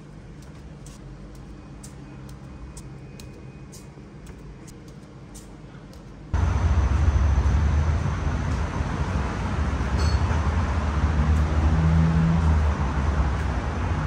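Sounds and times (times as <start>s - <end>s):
loud low rumble with hiss: 5.5s - 14.0s.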